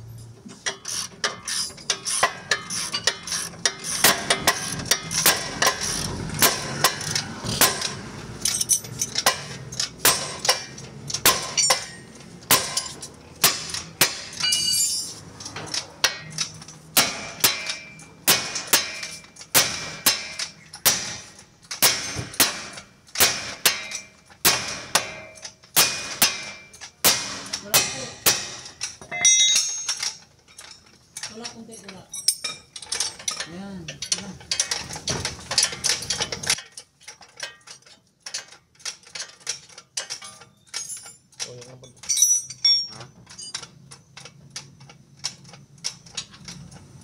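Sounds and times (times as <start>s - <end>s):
hammer striking metal: 1.2s - 8.0s, 8.6s - 15.1s, 17.0s - 30.2s.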